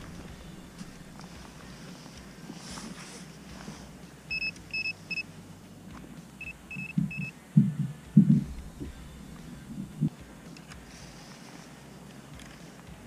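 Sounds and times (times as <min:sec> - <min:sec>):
low thumps: 0:00.0 - 0:02.5, 0:05.9 - 0:10.4.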